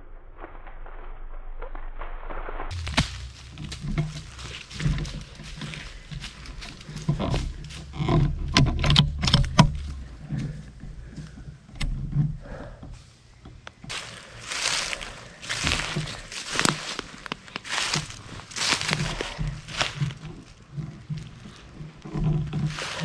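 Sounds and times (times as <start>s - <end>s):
low microphone rumble: 0.0s - 23.0s
dry leaves crunching: 2.7s - 8.4s, 13.9s - 21.8s, 22.6s - 23.0s.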